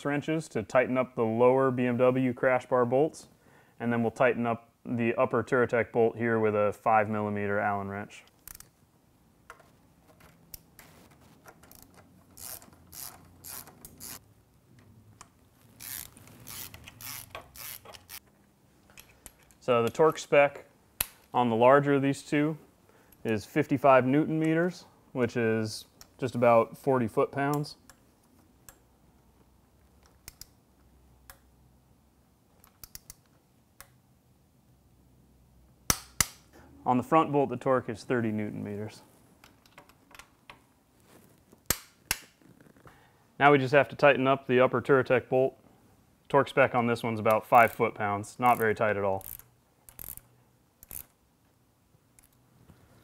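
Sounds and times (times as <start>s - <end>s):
hand ratchet clicking: 11.6s - 14.2s, 15.8s - 18.2s, 49.2s - 51.2s.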